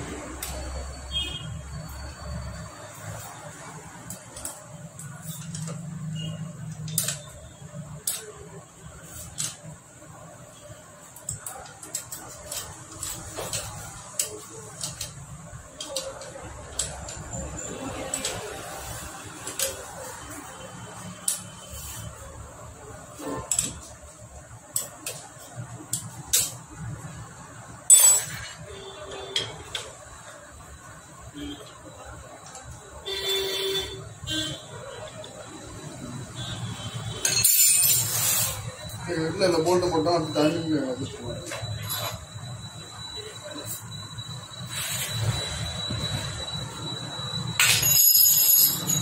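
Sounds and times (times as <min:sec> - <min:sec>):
metal parts clicking and tapping: 0:06.7 - 0:07.4, 0:11.1 - 0:17.3, 0:24.7 - 0:26.8, 0:37.2 - 0:38.2
tools clinking on metal: 0:27.9 - 0:28.6, 0:37.2 - 0:38.2, 0:47.6 - 0:49.0.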